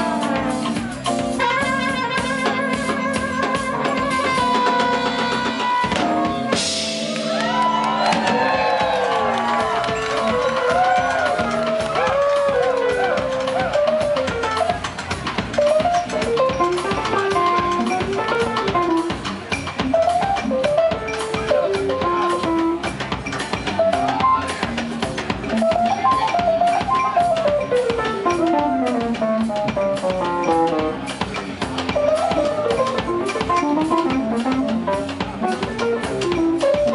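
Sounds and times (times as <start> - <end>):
bass guitar: 0.0 - 36.9
drum kit: 0.0 - 36.9
keyboard: 0.0 - 36.9
lead melody: 0.0 - 36.9.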